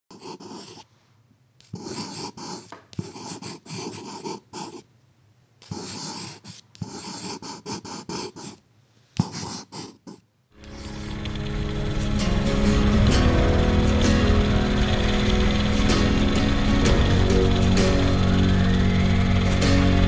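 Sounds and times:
drawing tool scribbling: 0.1 - 0.9, 1.6 - 4.9, 5.6 - 8.6, 9.2 - 12.2.

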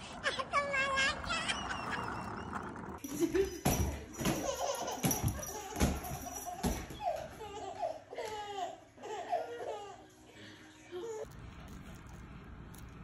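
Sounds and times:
baby laughing: 4.2 - 10.0.

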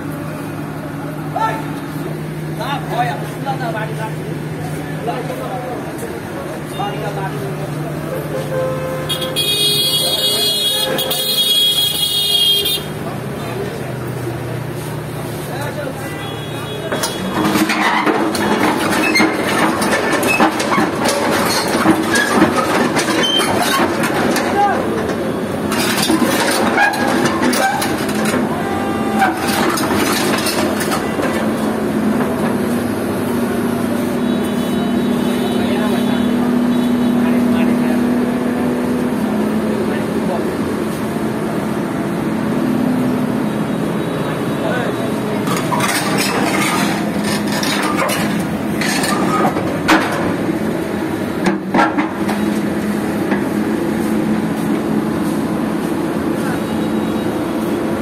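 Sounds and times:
diesel engine running: 0.0 - 58.0
steel tracks clanking: 16.8 - 58.0.

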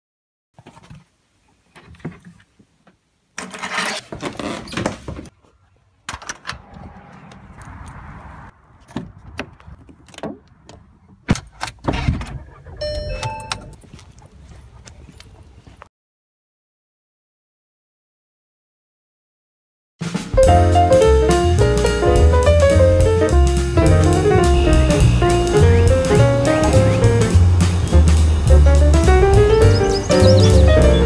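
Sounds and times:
low rumble: 6.4 - 8.8
short electronic beeps: 12.8 - 13.7.

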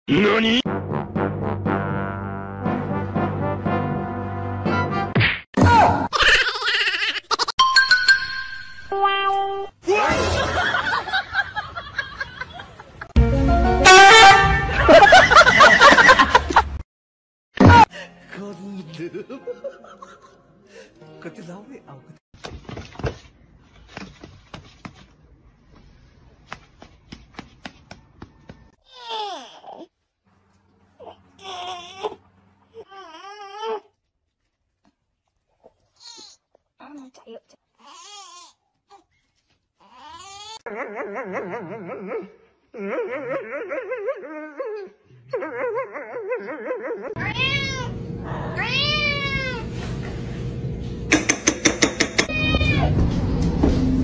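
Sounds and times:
cat meowing: 47.2 - 49.7, 52.3 - 53.0
sharp taps and clicks: 51.1 - 52.3.

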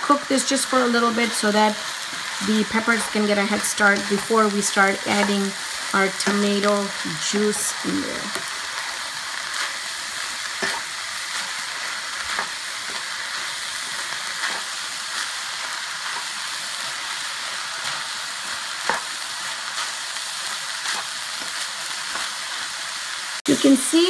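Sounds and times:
meat sizzling in frying pan: 0.0 - 24.0
spatula scraping and knocking pan: 0.5 - 16.5, 17.7 - 19.2.

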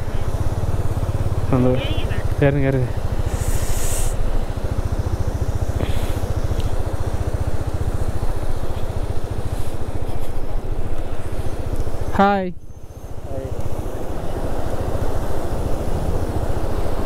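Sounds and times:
motorcycle engine idling: 0.0 - 17.0
short hiss: 3.2 - 4.3.

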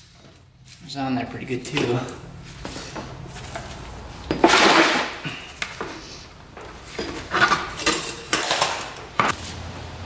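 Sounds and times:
knocks and scrapes: 5.8 - 9.4
metal tools clanking and scraping: 6.8 - 9.4.

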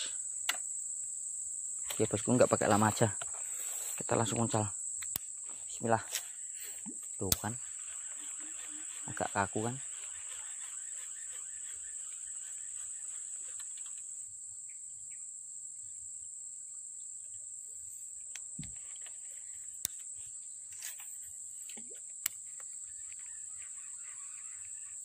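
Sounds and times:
insect chorus chirring: 0.0 - 25.0
sharp clicks: 7.3 - 9.3.

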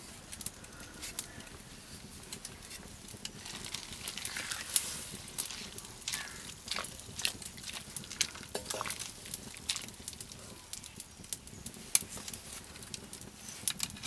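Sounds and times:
wooden spatula scraping wok: 1.8 - 10.6.

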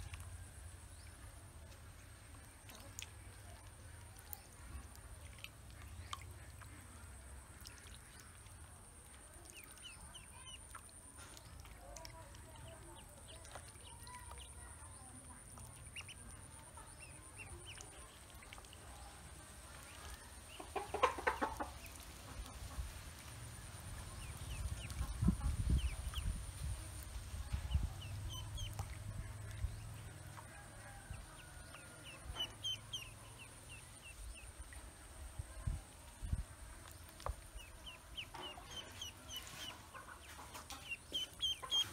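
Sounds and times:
ducklings peeping: 2.3 - 41.9
clucking: 20.4 - 22.9, 37.6 - 41.9.

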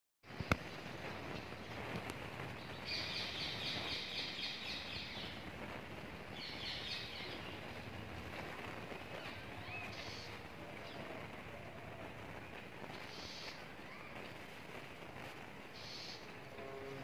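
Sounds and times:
outdoor background hiss: 0.2 - 17.0.

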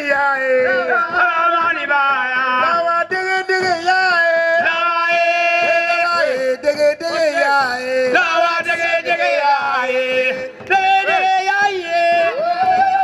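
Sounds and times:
voices singing a chant: 0.0 - 13.0.

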